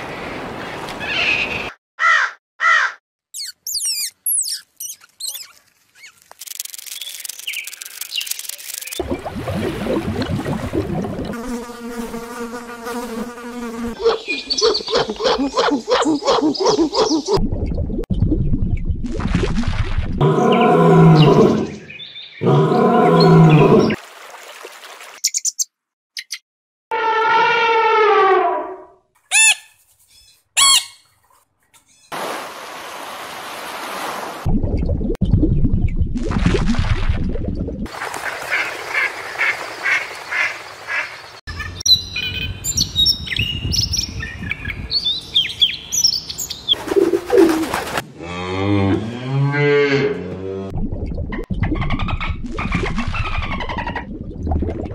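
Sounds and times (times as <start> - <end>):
high chirps: 3.3 - 9.1, 29.3 - 31.1
bird singing chirping phrases: 3.4 - 6.2, 14.0 - 17.3, 20.4 - 23.8, 41.5 - 46.8
animal calling: 14.0 - 17.4, 26.9 - 31.0
ducks quacking: 38.2 - 41.8
cow mooing: 48.2 - 50.7.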